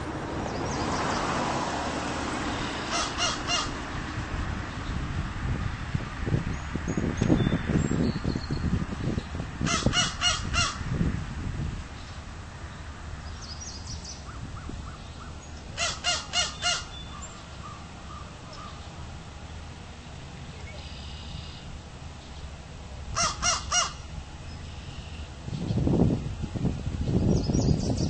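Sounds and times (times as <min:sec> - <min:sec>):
crow cawing: 0:02.8 - 0:03.8, 0:09.7 - 0:10.8, 0:15.8 - 0:16.9, 0:23.2 - 0:24.0.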